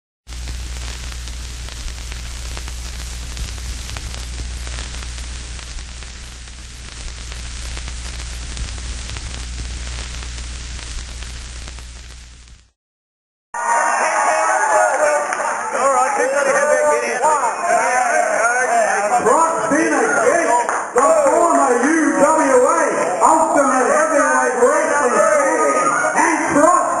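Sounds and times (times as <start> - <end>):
low electrical hum: 0.3 - 12.6
static hiss: 0.3 - 12.8.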